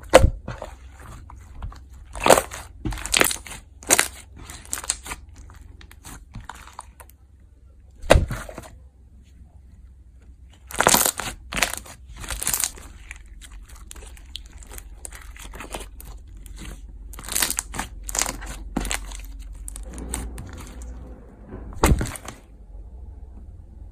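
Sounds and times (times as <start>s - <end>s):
steady low hum: 0.0s - 23.9s
slime crackling and popping: 1.7s - 7.1s, 10.6s - 20.9s.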